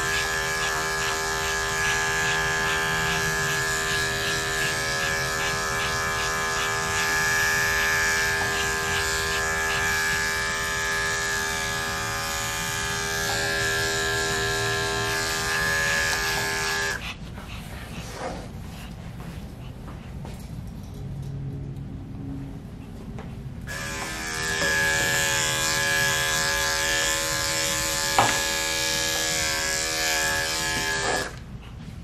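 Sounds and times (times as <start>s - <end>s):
electric clippers buzzing: 0.0s - 17.0s, 23.7s - 31.4s.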